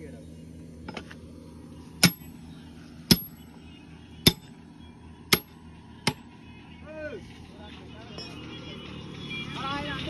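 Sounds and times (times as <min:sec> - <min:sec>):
hammer clanging on steel: 0:02.0 - 0:02.4, 0:03.1 - 0:03.4, 0:04.2 - 0:04.5.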